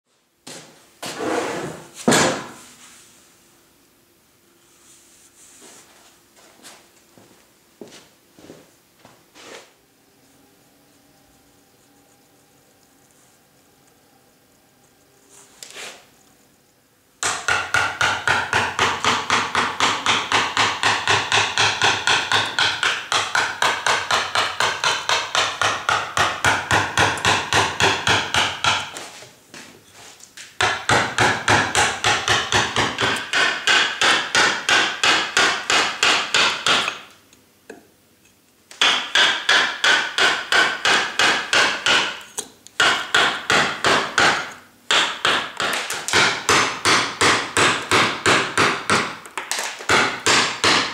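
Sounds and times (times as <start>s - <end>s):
mallet tapping carving gouge: 17.2s - 29.0s, 30.6s - 37.1s, 38.8s - 49.2s, 49.9s - 50.9s.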